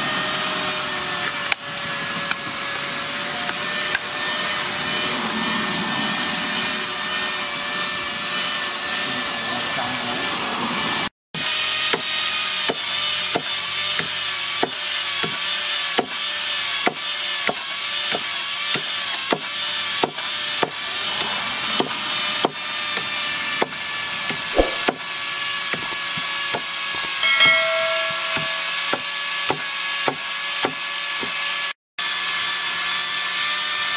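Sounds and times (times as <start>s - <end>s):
hatchet chopping bamboo: 11.5s - 23.8s, 28.9s - 31.5s.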